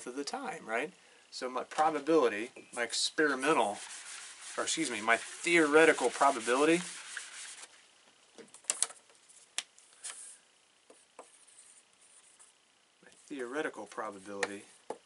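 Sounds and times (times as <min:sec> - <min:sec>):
faint rubbing: 0:02.8 - 0:07.8.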